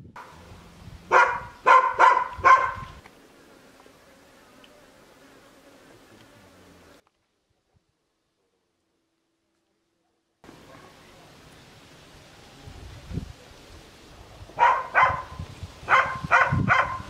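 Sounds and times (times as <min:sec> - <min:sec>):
dog barking: 0:01.1 - 0:03.0, 0:14.6 - 0:17.0
faint steady buzz: 0:03.0 - 0:07.0.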